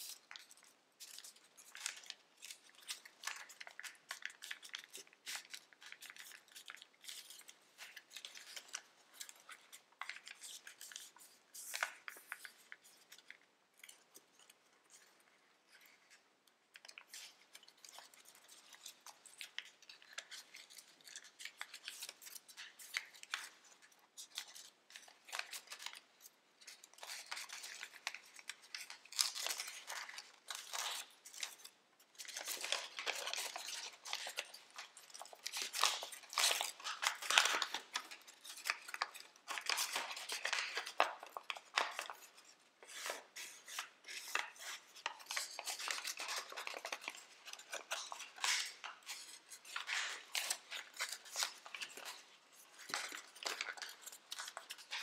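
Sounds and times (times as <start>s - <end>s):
foil paper crinkling: 0.0s - 14.0s, 26.6s - 55.0s.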